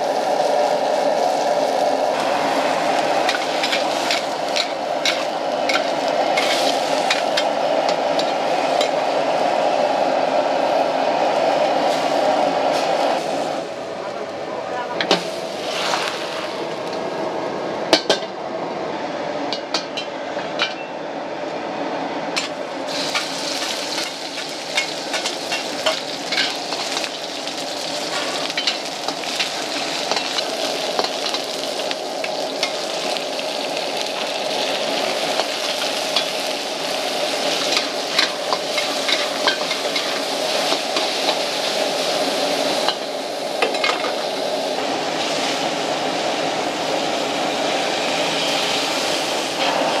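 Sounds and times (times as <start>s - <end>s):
food sizzling: 0.0s - 13.9s, 15.1s - 17.1s, 22.4s - 50.0s
gas burner: 0.0s - 50.0s
metal spatula scraping a wok: 3.3s - 7.2s.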